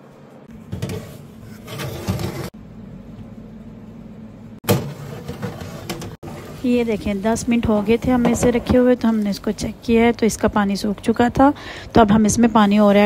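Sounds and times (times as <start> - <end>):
metal baking tray clattering: 0.7 - 2.5.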